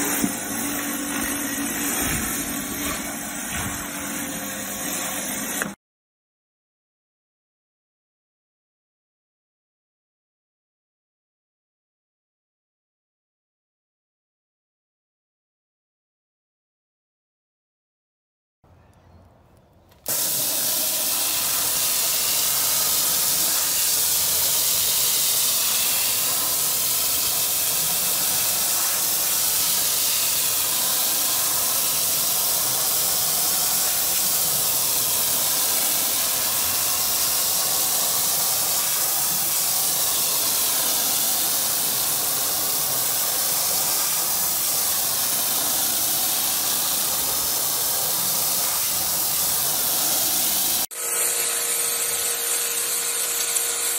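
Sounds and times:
hose water jet hissing on rug: 0:00.0 - 0:05.8, 0:20.0 - 0:53.9.

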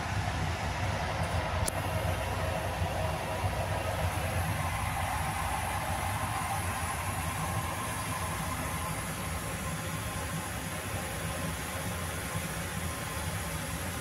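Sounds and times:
low hum: 0:00.0 - 0:12.1.

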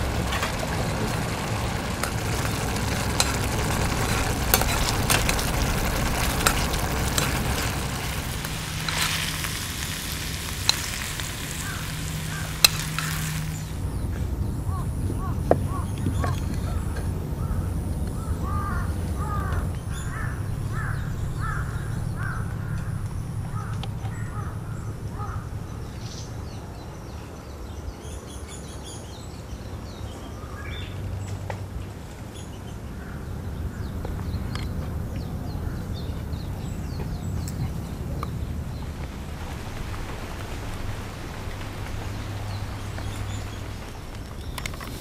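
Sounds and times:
low rumble: 0:00.0 - 0:27.2
crow cawing: 0:11.6 - 0:13.2, 0:16.6 - 0:25.5
faint clicks and chirps: 0:34.0 - 0:35.4, 0:36.0 - 0:45.0.

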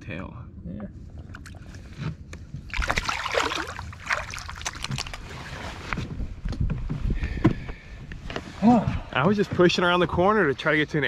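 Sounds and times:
water sloshing: 0:01.2 - 0:02.0, 0:02.6 - 0:06.0
fish splashing in water: 0:02.7 - 0:05.7.

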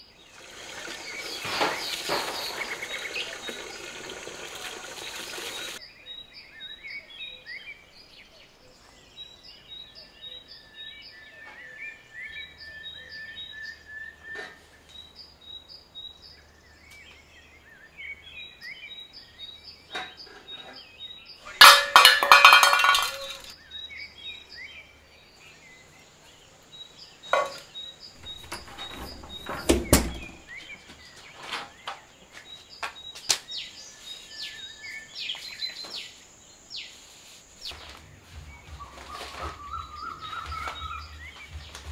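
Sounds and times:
small birds chirping: 0:00.0 - 0:21.6, 0:22.2 - 0:41.9
household things knocking and clinking: 0:21.6 - 0:23.5, 0:28.2 - 0:30.4
heavy thunk: 0:28.2 - 0:30.4.

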